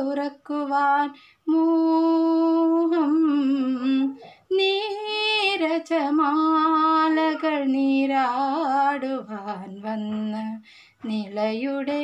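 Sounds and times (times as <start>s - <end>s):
singer breathing: 10.6s - 11.0s.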